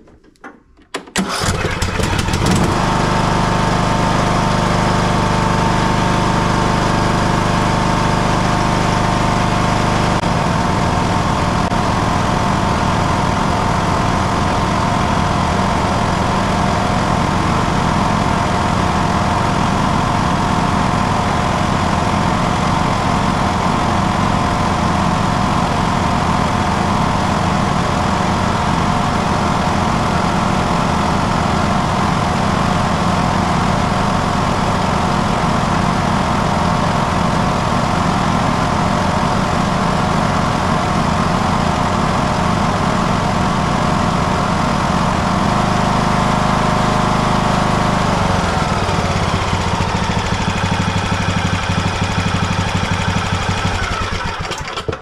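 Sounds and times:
riding mower engine running: 0.0 - 55.0.

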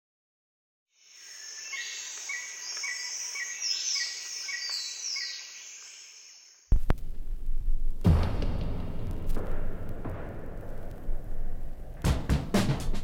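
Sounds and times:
birds and insects chirping: 1.0 - 6.7
loud thud: 6.7 - 13.0.

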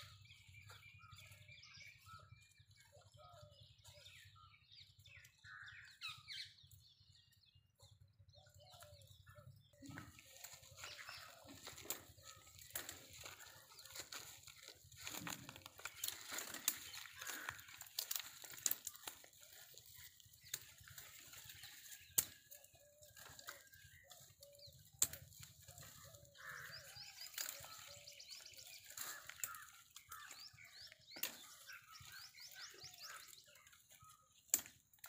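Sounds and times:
faint bird calls: 8.4 - 34.7
dry branches rustling and snapping: 9.8 - 35.0
twigs cracking: 9.8 - 35.0.

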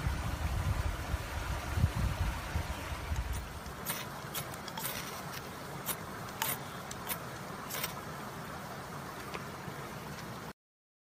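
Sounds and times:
steady background hiss: 0.0 - 10.5
blade scraping fire-starter rod: 3.1 - 8.0.

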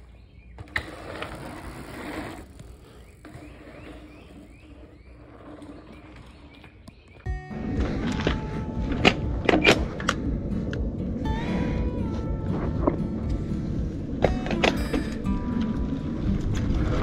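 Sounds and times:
bike tyres crunching on dirt: 0.0 - 10.0.

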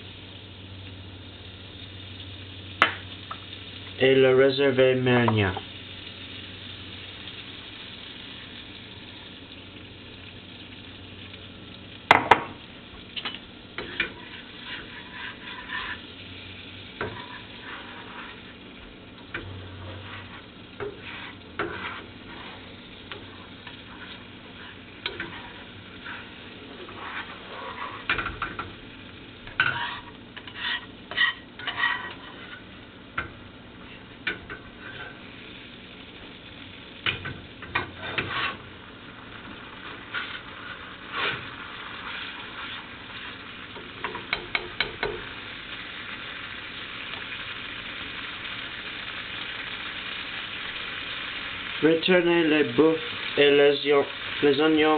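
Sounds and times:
pot cooking hiss: 0.0 - 54.9
spoon stirring and scraping pot: 13.2 - 16.1, 17.0 - 18.6, 19.3 - 28.8, 29.5 - 35.2, 37.2 - 38.7, 39.8 - 45.3.

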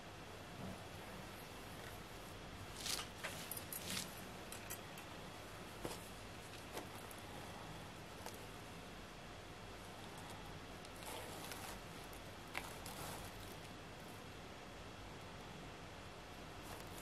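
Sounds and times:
steady low hiss: 0.0 - 17.0
handling rustles: 1.8 - 7.3, 10.2 - 14.1, 16.6 - 17.0.

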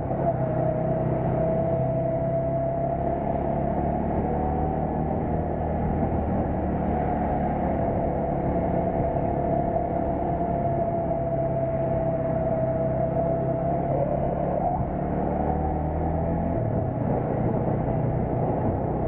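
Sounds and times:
road and wind rush: 0.0 - 19.0
steady whine: 6.0 - 15.7.

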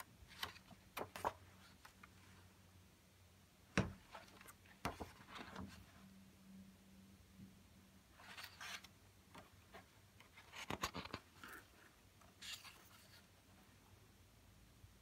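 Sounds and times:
book pages turning: 0.0 - 2.2, 4.0 - 5.8, 8.2 - 13.3.

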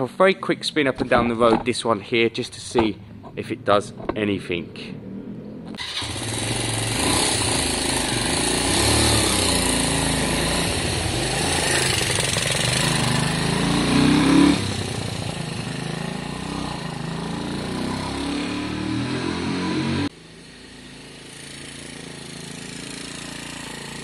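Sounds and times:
motorcycle engine revving: 4.9 - 24.0.

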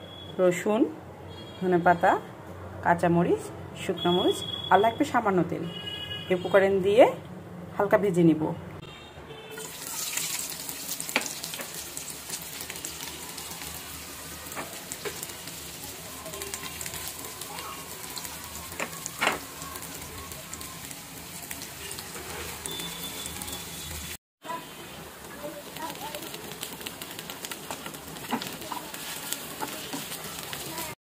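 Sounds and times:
oil crackling and popping: 9.6 - 24.2, 25.3 - 31.0
onions sizzling in hot oil: 9.6 - 31.0.

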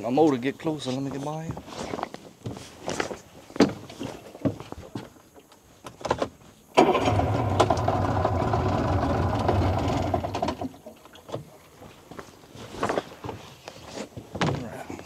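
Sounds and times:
boat motor cranking clicks: 6.8 - 10.9
boat motor idling: 6.8 - 10.9.

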